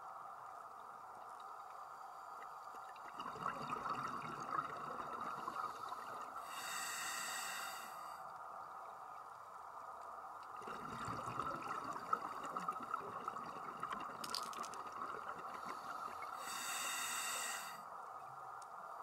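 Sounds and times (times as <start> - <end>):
underwater hum: 0.0 - 19.0
bubbling hiss: 1.5 - 8.2, 10.5 - 17.9
crackling clicks: 13.9 - 15.0.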